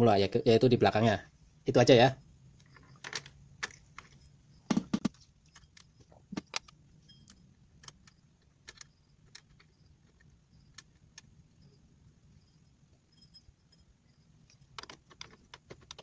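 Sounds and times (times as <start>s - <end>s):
small metal parts clicking: 2.6s - 4.3s, 5.1s - 11.8s, 13.2s - 16.0s.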